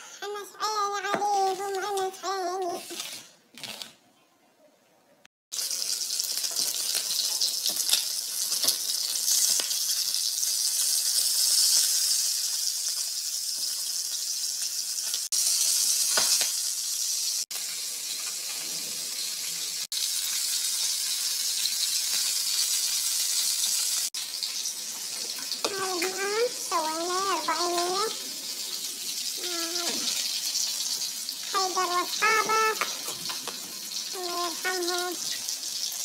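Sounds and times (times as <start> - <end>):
chicken frying in oil: 5.5 - 36.0.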